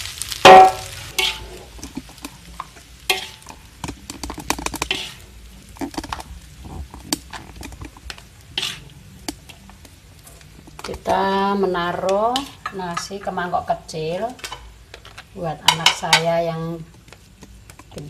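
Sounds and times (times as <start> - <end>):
metal spatula striking wok: 0.4 - 1.8, 3.0 - 5.2, 11.8 - 13.4, 15.6 - 16.4
scraping and clinking in wok: 0.4 - 9.6, 10.2 - 13.4, 14.3 - 16.4.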